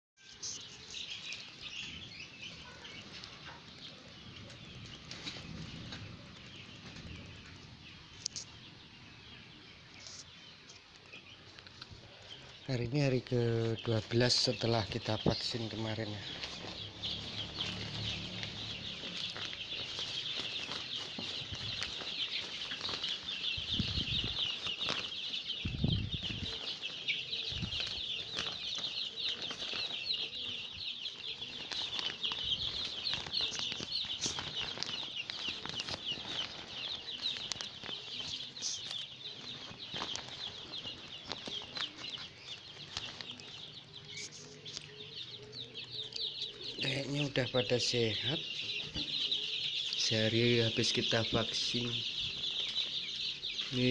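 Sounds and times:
chicks peeping: 0:00.2 - 0:53.9.

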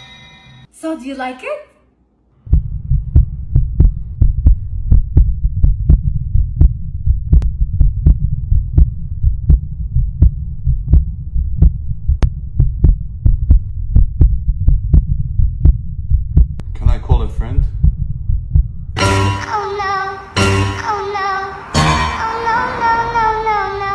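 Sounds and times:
continuous low hum: 0:00.7 - 0:22.4
heartbeat thuds: 0:02.4 - 0:19.0.

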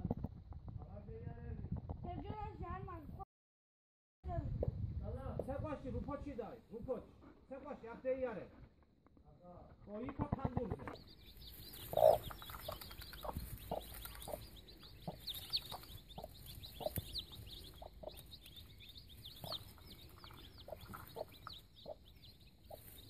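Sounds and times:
baby chicks peeping: 0:09.6 - 0:23.0
hen clucking low: 0:11.4 - 0:22.8.

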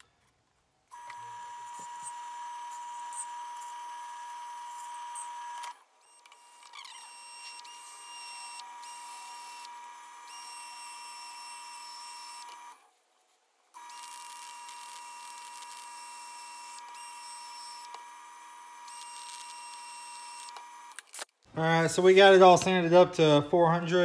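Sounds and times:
cordless drill sanding: 0:00.9 - 0:12.8, 0:13.8 - 0:21.3
wood lathe whine: 0:00.9 - 0:12.8, 0:13.8 - 0:21.0.

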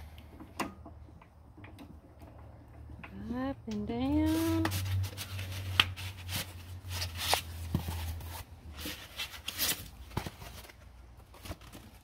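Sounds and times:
low steady hum: 0:00.0 - 0:12.0
foam packing rustling: 0:04.2 - 0:12.0.

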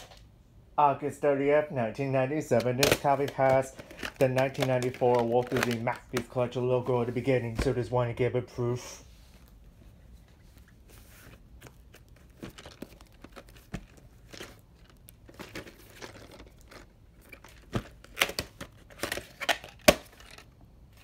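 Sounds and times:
plastic case clacks: 0:02.5 - 0:06.4, 0:11.6 - 0:20.5.

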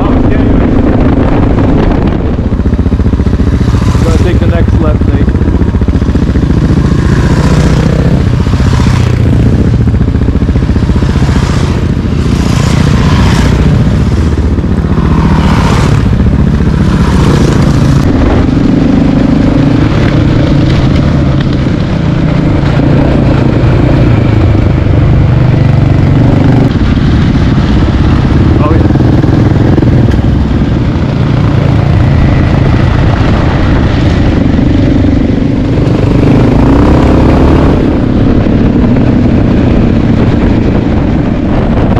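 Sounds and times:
motorcycle engine drone: 0:00.0 - 0:41.9
dirt bikes riding past: 0:03.4 - 0:05.2, 0:06.0 - 0:09.8, 0:10.9 - 0:21.5.

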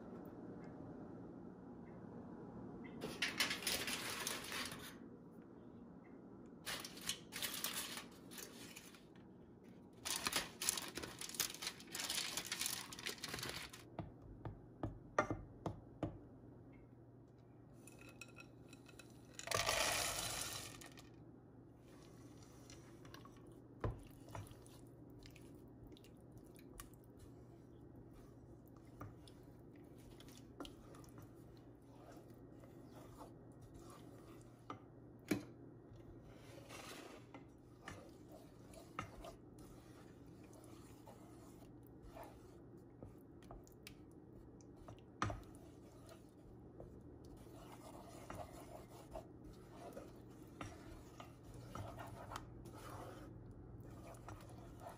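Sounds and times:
low steady hum: 0:00.0 - 0:54.9
aluminium foil crinkling: 0:03.2 - 0:05.0, 0:06.7 - 0:09.1, 0:10.0 - 0:13.9
wooden spoon stirring in saucepan: 0:10.0 - 0:16.2, 0:21.7 - 0:54.9.

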